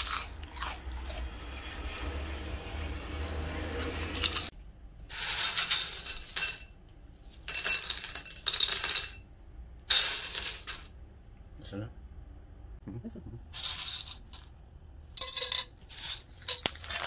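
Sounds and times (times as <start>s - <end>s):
chips crunching: 0.0s - 2.0s, 3.3s - 4.5s, 15.2s - 17.0s
dry snack pellets rattling in bowl: 13.6s - 14.6s, 15.2s - 17.0s.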